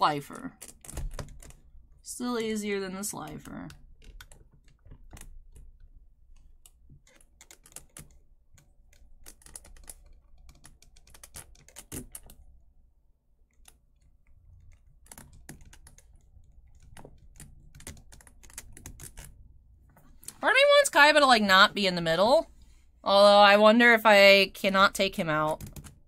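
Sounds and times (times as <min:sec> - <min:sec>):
plastic parts clicking together: 0:03.2 - 0:12.4.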